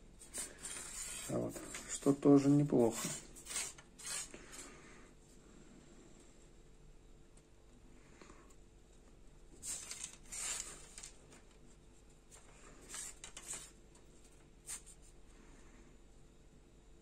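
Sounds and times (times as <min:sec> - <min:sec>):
fishing rod rubbing and scraping: 0:00.2 - 0:04.7.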